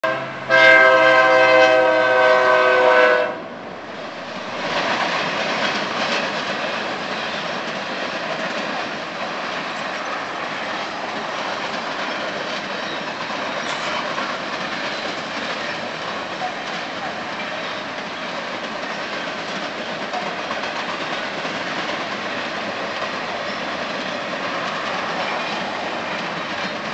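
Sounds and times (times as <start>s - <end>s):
locomotive horn blast: 0.0s - 3.5s
freight train wheels on rails: 0.0s - 26.9s.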